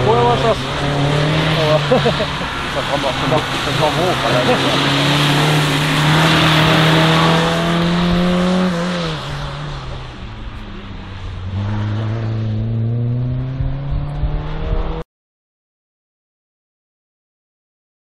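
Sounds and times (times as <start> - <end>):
car engine at high revs: 0.0 - 15.0
tyres hissing on wet track: 0.4 - 7.9.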